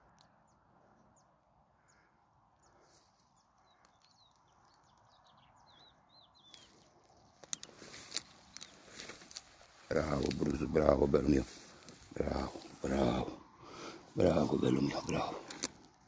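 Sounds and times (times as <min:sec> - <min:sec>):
distant birdsong: 0:00.0 - 0:16.0
sharp clicks: 0:15.3 - 0:16.0.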